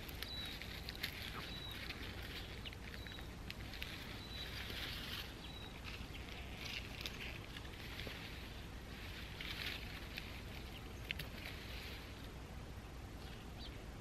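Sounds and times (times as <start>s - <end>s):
small bird chirping: 0.0s - 8.7s
plants rustling and snapping: 0.0s - 12.4s.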